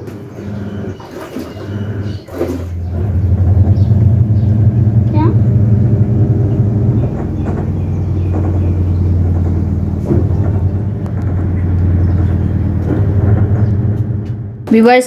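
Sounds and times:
washing machine drum spinning: 0.0 - 15.0.

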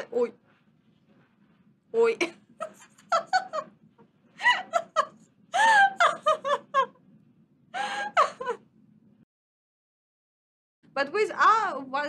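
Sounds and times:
person laughing: 2.6 - 3.7, 4.4 - 7.0, 7.8 - 8.6.

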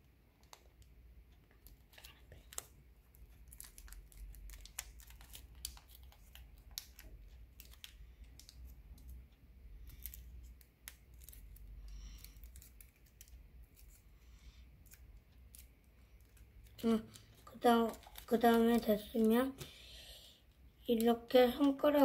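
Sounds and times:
paper crinkling while folded: 1.4 - 19.6.

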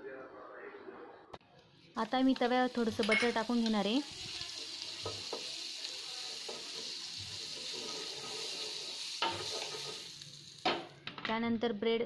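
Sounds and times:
butter sizzling in a pan: 2.0 - 11.0
wooden spatula scraping a pan: 6.5 - 10.0.

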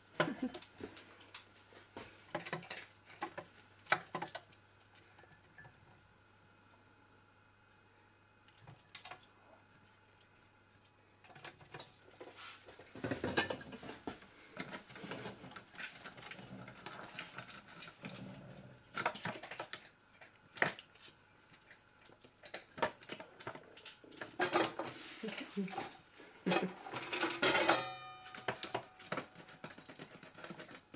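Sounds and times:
squirrel claws scrabbling on tins: 11.2 - 30.9.

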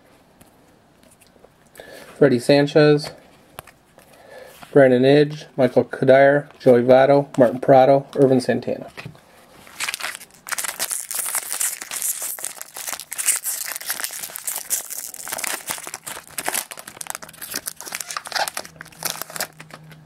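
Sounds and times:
foil wrapper crinkling: 9.7 - 20.0.

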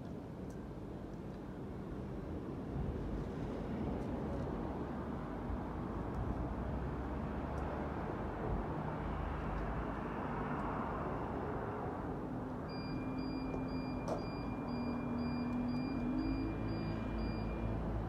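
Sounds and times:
road traffic hum: 0.1 - 18.0
short high beeps: 12.7 - 17.8.

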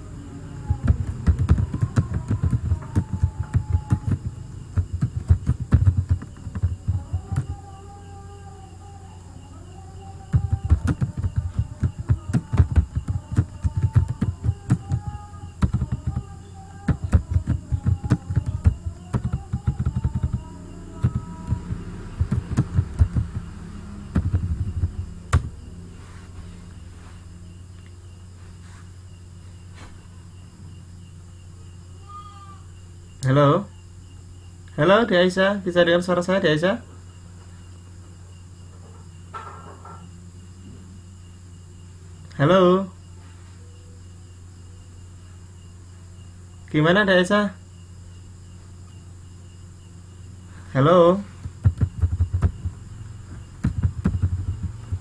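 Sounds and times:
low electrical hum: 0.0 - 55.0
keyboard typing clicks: 0.7 - 7.5, 10.3 - 23.4, 24.1 - 25.5.

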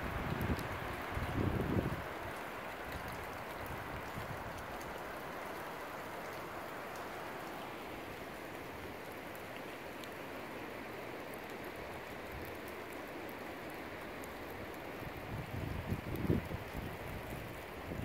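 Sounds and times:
wind gusts buffeting microphone: 0.0 - 2.1, 15.2 - 18.0
windy rainstorm hiss: 0.0 - 18.0.

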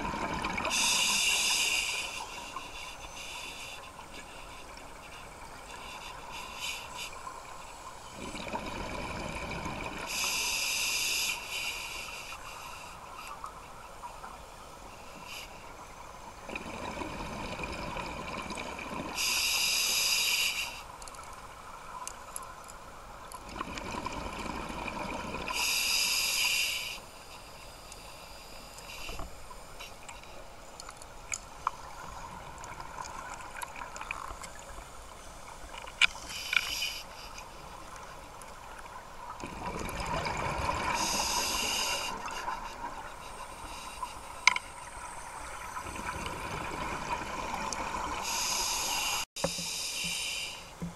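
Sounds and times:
exhaled bubbles underwater: 0.0 - 1.0, 8.1 - 10.1, 16.4 - 19.2, 23.4 - 25.6, 39.3 - 43.1, 45.5 - 48.4
regulator hissing on inhale: 0.6 - 8.1, 10.0 - 13.5, 14.8 - 16.4, 19.1 - 21.0, 25.5 - 30.1, 36.1 - 37.7, 40.7 - 44.9, 48.0 - 50.8.

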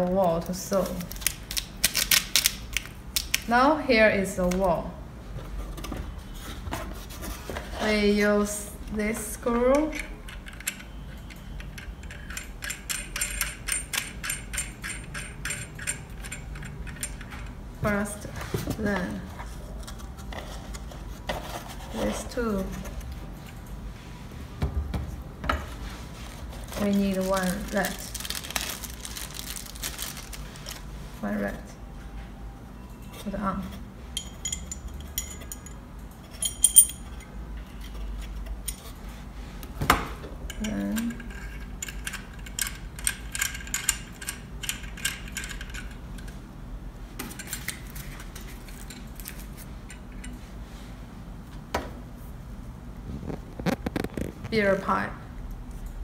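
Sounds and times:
metallic clicking of nut turning: 11.6 - 17.4
metal fittings clinking: 34.2 - 37.3.

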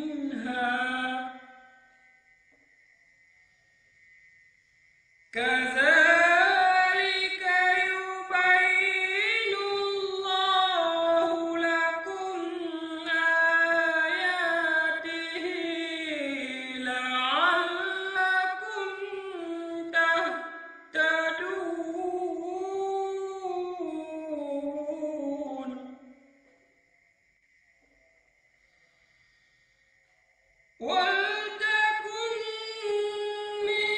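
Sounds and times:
man chanting melodically: 5.4 - 25.8.

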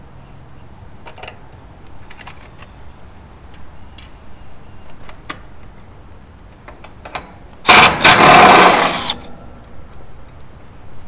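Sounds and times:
cordless driver running: 7.7 - 9.2.

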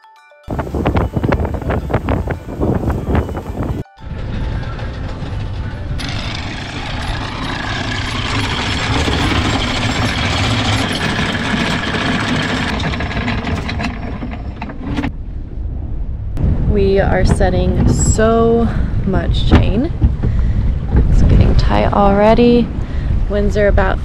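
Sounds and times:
anchor chain rattling: 3.6 - 15.1.

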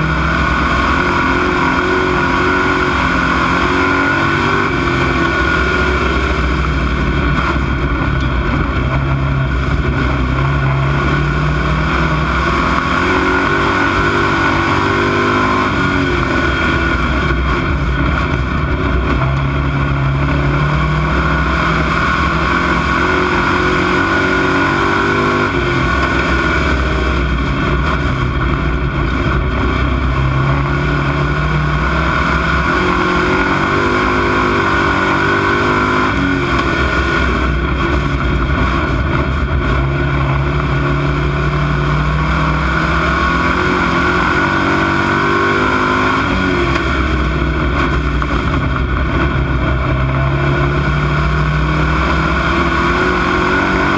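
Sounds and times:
race car engine: 0.0 - 53.9.

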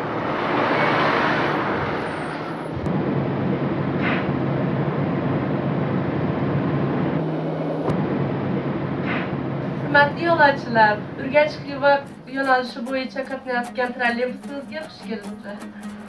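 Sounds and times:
broad rushing sound: 0.0 - 16.0
trolleybus humming: 0.0 - 16.0.

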